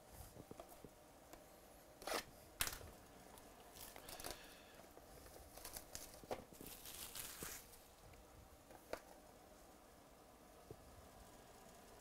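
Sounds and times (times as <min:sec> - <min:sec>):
shrink-wrap crinkling and ripping: 0:05.5 - 0:07.9.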